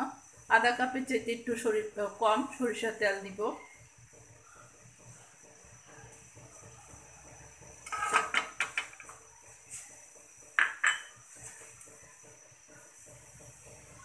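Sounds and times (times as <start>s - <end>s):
dishes and utensils clinking: 7.9s - 9.0s, 10.6s - 11.3s.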